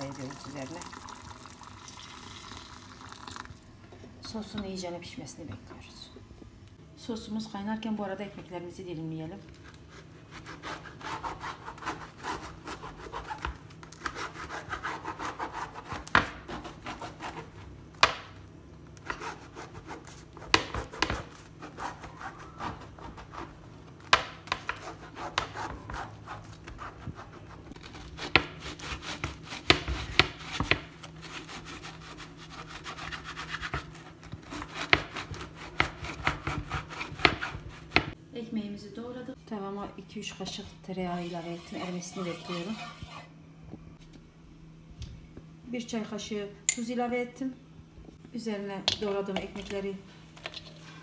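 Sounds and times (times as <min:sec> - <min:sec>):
knife sawing through bread: 0:09.9 - 0:17.6, 0:19.0 - 0:20.6, 0:21.3 - 0:23.6, 0:24.7 - 0:38.0.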